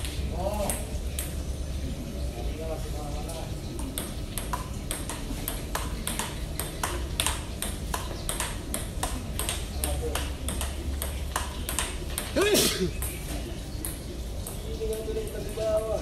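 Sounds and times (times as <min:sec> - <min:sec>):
ping-pong ball clicking: 0:00.6 - 0:01.4, 0:03.8 - 0:12.4, 0:13.8 - 0:15.4.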